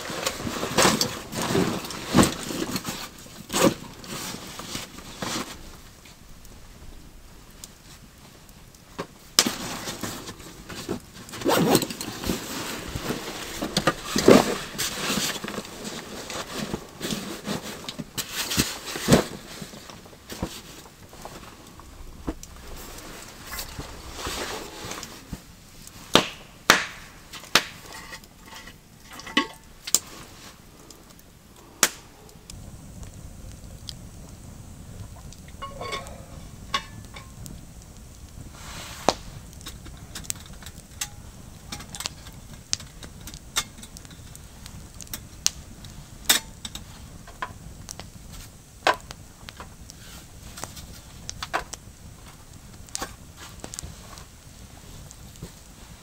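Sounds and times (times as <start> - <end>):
rustling of gear and bedding: 0.0 - 6.9, 7.8 - 26.2, 27.4 - 30.9.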